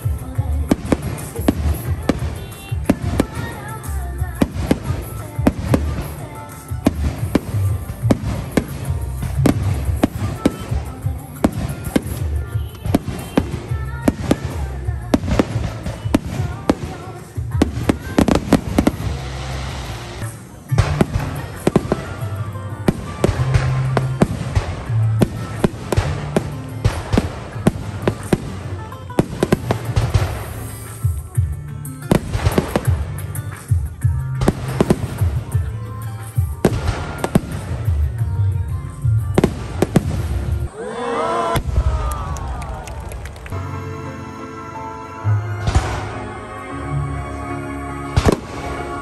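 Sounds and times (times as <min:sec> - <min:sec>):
fireworks bangs: 0:00.0 - 0:31.4, 0:32.0 - 0:40.7, 0:45.6 - 0:46.4, 0:48.2 - 0:49.0
music: 0:00.0 - 0:49.0
low rumble: 0:18.7 - 0:20.2.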